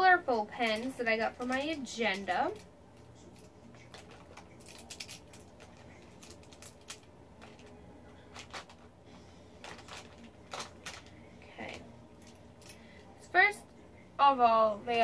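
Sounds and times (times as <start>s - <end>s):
pens clicking in plastic case: 3.4s - 7.7s, 8.3s - 8.8s, 9.6s - 11.1s.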